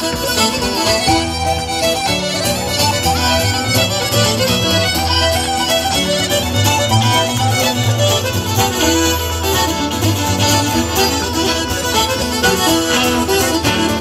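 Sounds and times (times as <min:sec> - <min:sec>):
accordion: 0:00.0 - 0:14.0
fiddle melody: 0:00.0 - 0:14.0
strummed acoustic guitar: 0:00.0 - 0:14.0.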